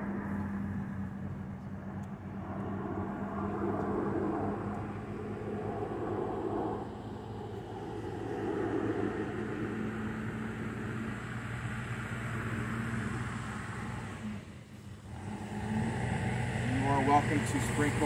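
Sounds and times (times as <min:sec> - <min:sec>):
engine running steadily: 0:00.0 - 0:18.0.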